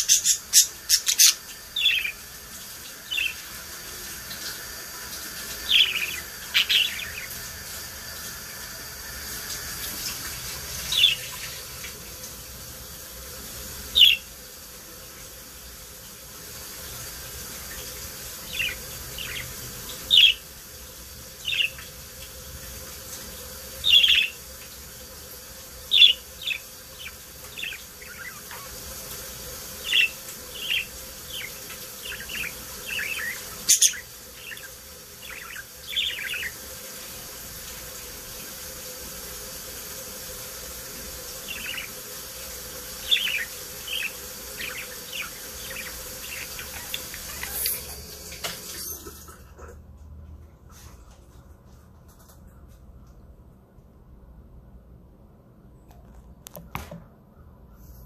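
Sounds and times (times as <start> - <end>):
budgerigars chirping: 0.0 - 2.2, 5.7 - 7.4, 14.0 - 14.3, 18.5 - 19.5, 20.1 - 20.4, 21.4 - 21.9, 23.8 - 24.4, 25.9 - 28.8, 29.8 - 36.6, 41.5 - 41.9, 43.0 - 48.0
faint steady hum: 0.0 - 58.0.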